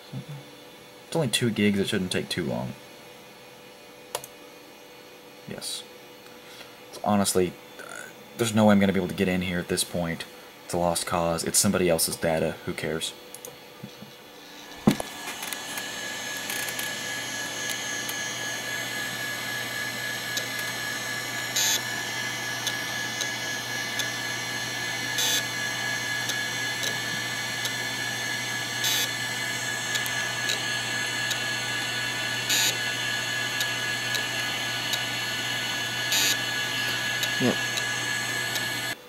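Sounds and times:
hard drive whining: 10.8 - 39.0
hard drive noise bursts: 13.8 - 39.0.

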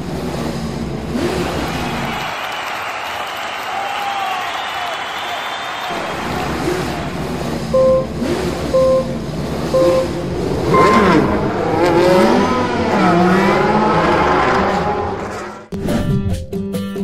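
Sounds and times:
race car engines revving: 0.0 - 3.6, 4.4 - 15.7
short beeps: 7.7 - 11.5
high-pitched go beep: 7.7 - 11.8.

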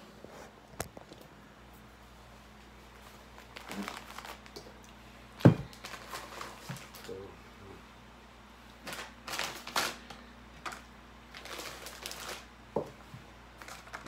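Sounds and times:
packets rustling: 3.0 - 4.7, 5.6 - 7.3, 8.8 - 12.5, 13.5 - 14.0.

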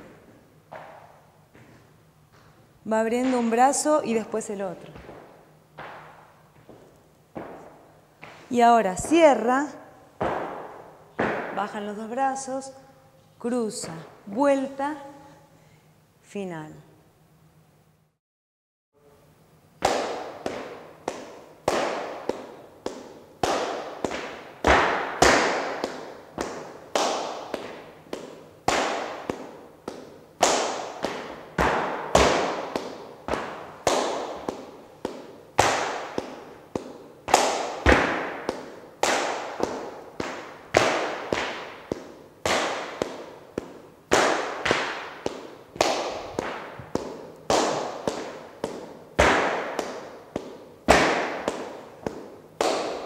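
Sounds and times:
rhythmic hand clapping: 19.8 - 53.0.

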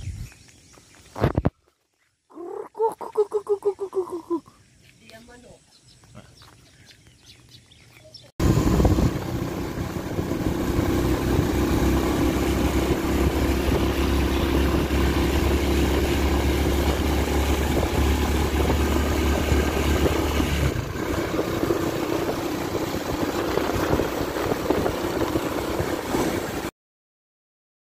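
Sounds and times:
road and wind noise: 0.0 - 1.6, 6.9 - 26.7
vehicle engine hum: 8.4 - 26.7.

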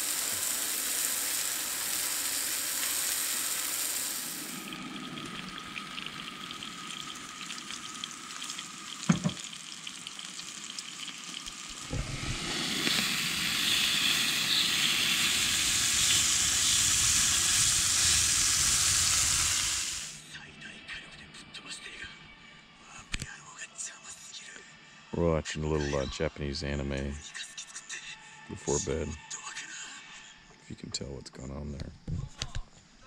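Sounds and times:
crackling hiss like frying: 0.0 - 20.3
low thump: 9.1 - 9.4
sharp knock: 9.1 - 9.4.

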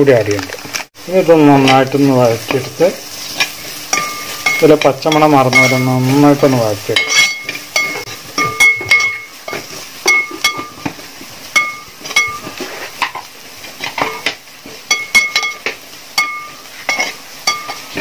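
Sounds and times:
light sizzle of frying: 0.0 - 18.0
metal spatula scraping metal pot: 6.9 - 10.9.

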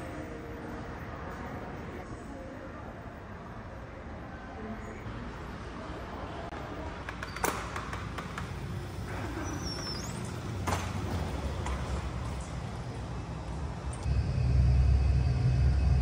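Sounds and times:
low outdoor rumble: 8.7 - 16.0.

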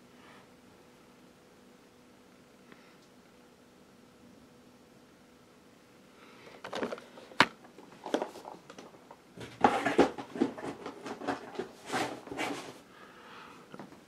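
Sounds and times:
boxes knocking and rustling: 6.6 - 12.8.

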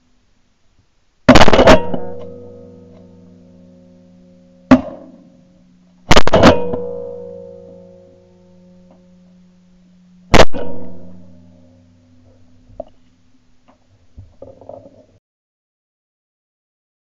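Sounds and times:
shotgun shots: 1.3 - 2.1, 6.1 - 7.0, 10.3 - 11.2
guitar music: 1.7 - 13.7.

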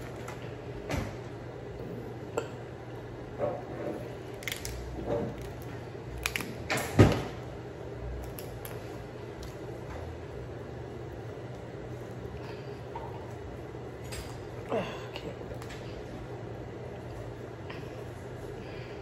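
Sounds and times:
crab shell cracking and snapping: 4.3 - 6.9, 8.2 - 8.8.

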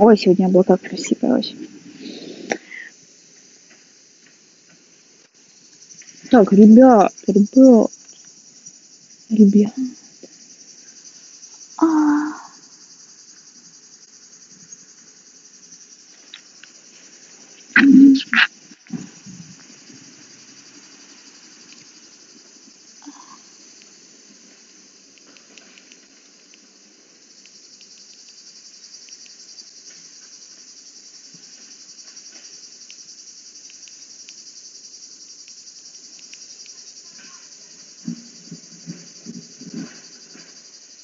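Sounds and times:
insect chorus with pulsing buzz: 0.0 - 41.0
faint clicks: 25.2 - 26.6.

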